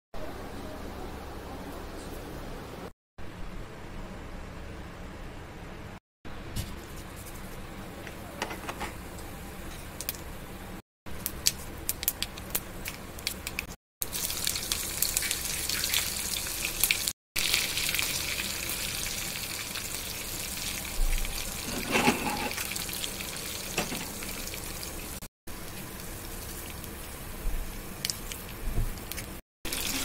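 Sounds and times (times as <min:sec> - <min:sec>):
hot oil sizzling in pan: 0:12.8 - 0:30.0.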